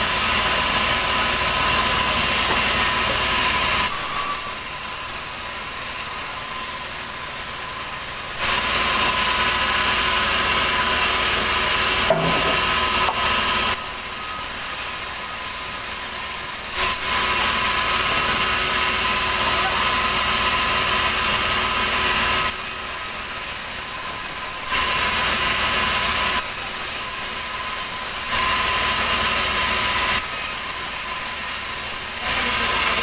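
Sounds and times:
sawmill saw cutting log: 0.0s - 33.0s
sharp knock: 12.1s - 13.2s.

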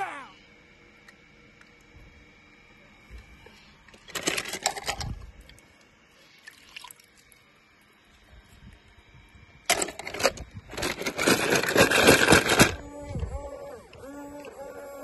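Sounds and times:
toy cars clattering in plastic bucket: 4.1s - 5.1s, 9.7s - 12.8s.

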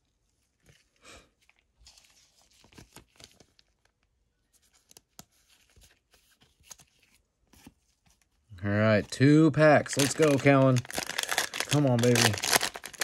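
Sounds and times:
plastic wrapper crinkling and tearing: 1.5s - 4.1s, 9.8s - 13.0s.

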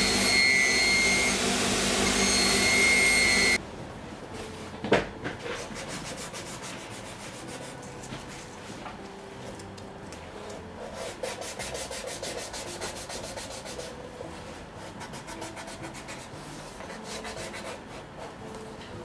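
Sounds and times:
sanding leather by hand: 5.5s - 7.9s, 10.8s - 14.0s, 14.8s - 18.4s.

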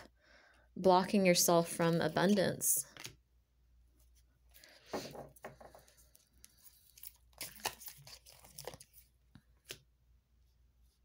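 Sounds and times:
cards rustling and clicking: 4.0s - 9.9s.

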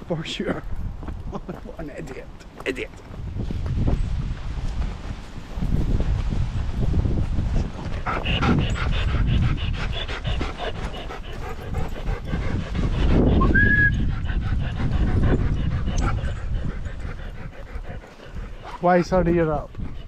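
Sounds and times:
steady low rumble: 3.0s - 18.7s
dog panting: 7.8s - 20.0s.

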